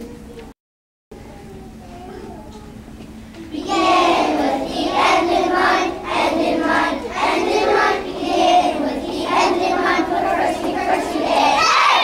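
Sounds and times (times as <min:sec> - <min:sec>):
children singing in unison: 0:03.4 - 0:12.0.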